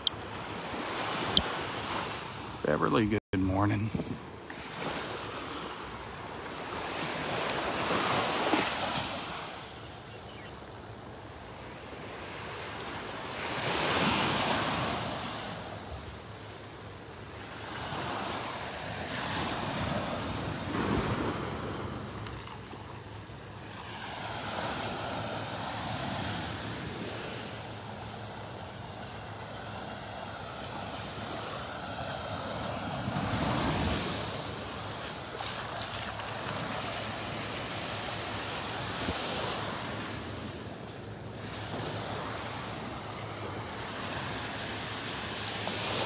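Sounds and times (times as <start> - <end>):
waves washing onto sandy beach: 0.0 - 46.0
wind on microphone: 3.5 - 4.3.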